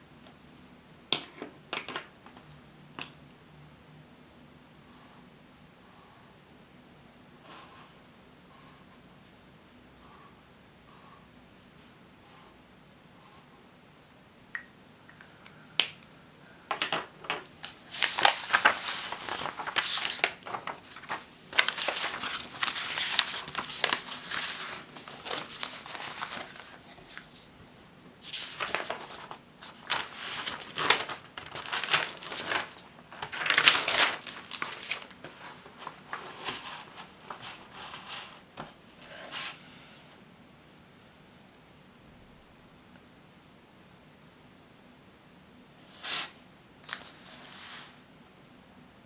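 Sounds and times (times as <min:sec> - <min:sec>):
paper rustling and crinkling: 0:16.8 - 0:39.4, 0:46.1 - 0:48.0.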